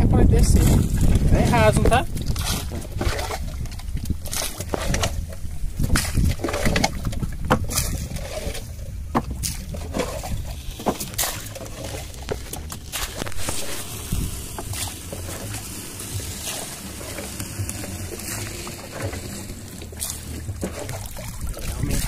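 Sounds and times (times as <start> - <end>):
steady low rumble: 0.0 - 22.0
water sloshing around a boat: 0.0 - 22.0.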